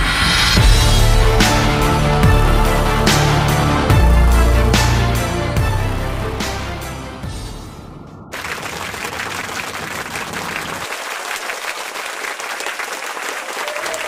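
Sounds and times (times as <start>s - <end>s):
music: 0.0s - 8.4s.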